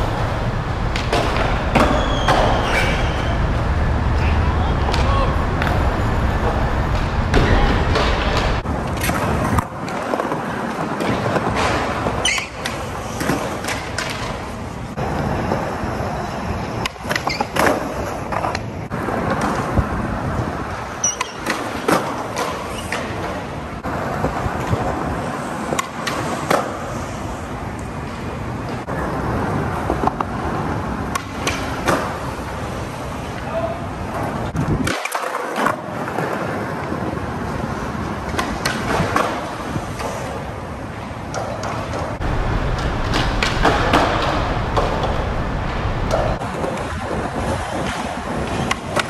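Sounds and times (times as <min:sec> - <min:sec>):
skateboard wheels rolling on concrete: 0:00.0 - 0:49.0
skateboards clacking on landing: 0:04.8 - 0:14.6, 0:41.2 - 0:49.0.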